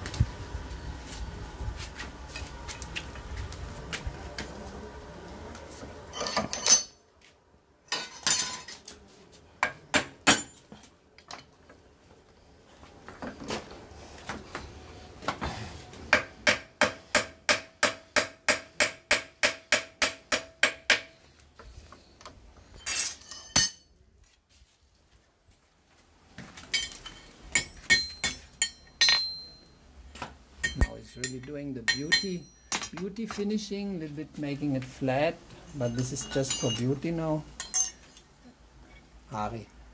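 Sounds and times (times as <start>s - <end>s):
hammer striking steel on anvil: 9.6s - 10.7s, 16.1s - 21.2s, 26.8s - 29.6s, 30.6s - 33.0s, 37.6s - 38.0s.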